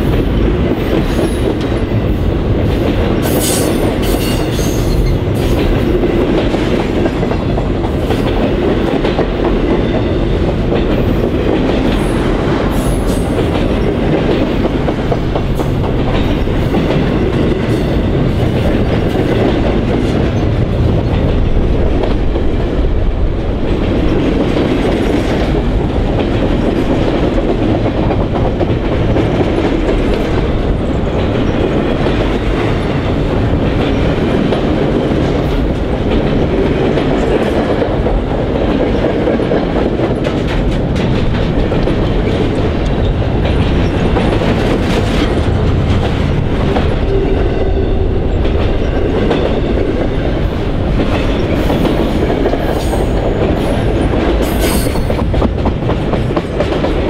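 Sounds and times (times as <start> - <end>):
train wheels rumbling on rails: 0.0 - 57.0
wheels clacking over rail joints: 0.0 - 57.0.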